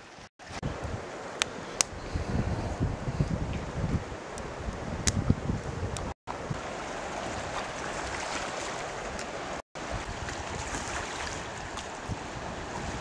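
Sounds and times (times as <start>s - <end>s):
wind buffeting microphone: 0.4s - 13.0s
waves washing against rocks: 6.3s - 13.0s.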